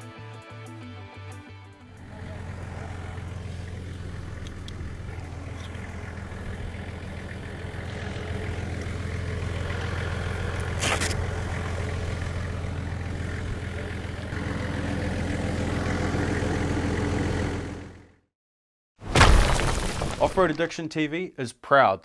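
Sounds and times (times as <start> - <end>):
car engine idling: 2.0 - 18.2.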